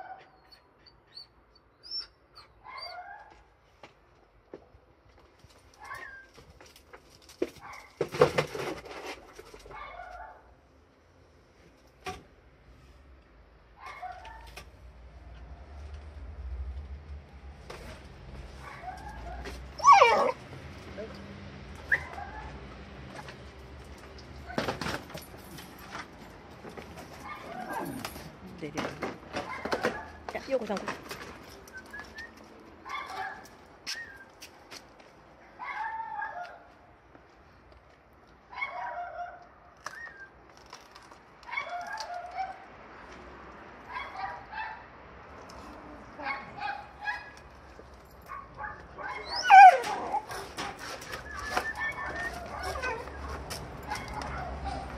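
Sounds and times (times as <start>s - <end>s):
dog yelping and whining: 0.0s - 3.2s, 18.7s - 20.4s, 21.8s - 22.6s, 48.6s - 54.9s.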